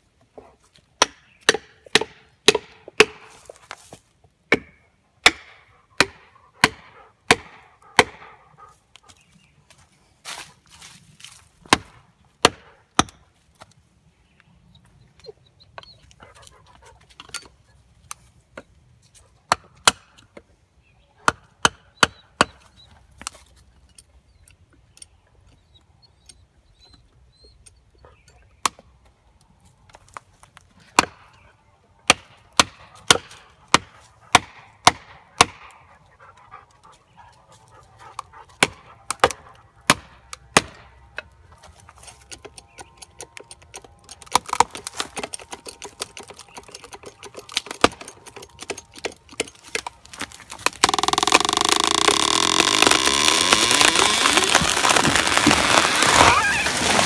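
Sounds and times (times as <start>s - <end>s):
wood cracking: 41.6s - 57.0s.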